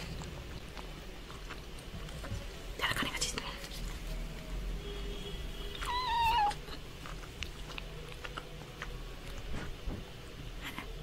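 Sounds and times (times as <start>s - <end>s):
cat meowing: 5.7s - 6.8s.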